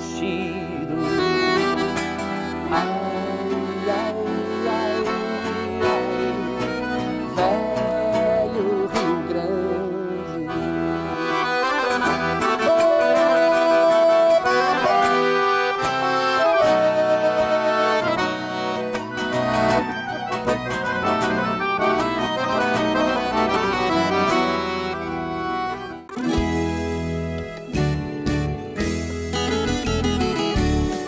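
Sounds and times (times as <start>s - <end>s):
person singing: 0.0s - 18.2s
accordion playing: 0.0s - 31.0s
bass accompaniment: 0.0s - 31.0s.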